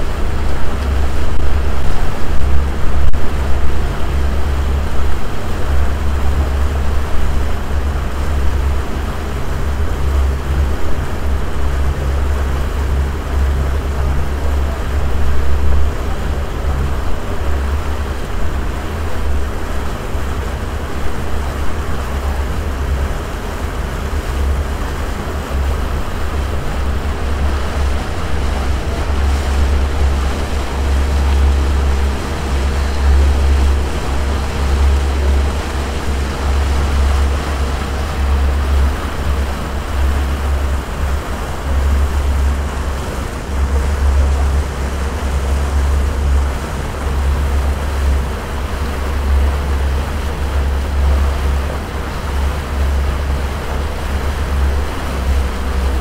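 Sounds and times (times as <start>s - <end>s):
boat engine drone: 0.0s - 56.0s
water rushing: 0.0s - 56.0s
wind rumbling on microphone: 0.0s - 56.0s.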